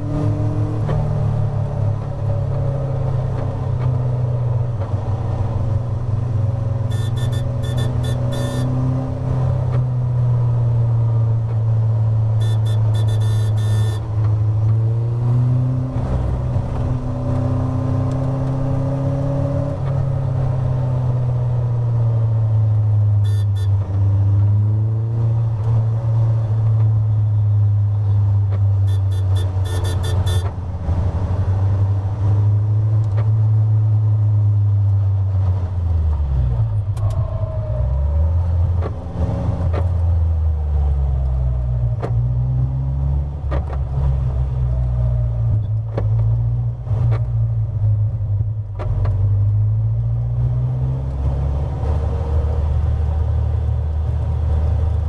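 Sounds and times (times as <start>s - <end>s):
car engine under race load: 0.0s - 55.0s.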